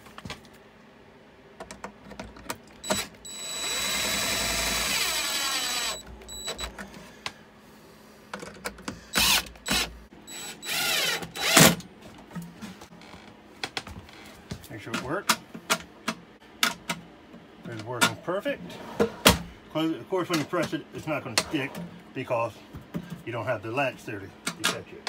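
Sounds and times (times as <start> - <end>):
cordless drill driving screws: 2.8 - 6.0, 9.2 - 11.8.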